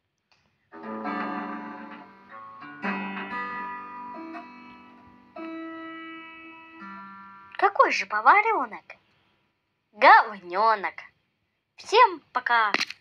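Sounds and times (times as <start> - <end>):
ringing chords: 0.8 - 7.7.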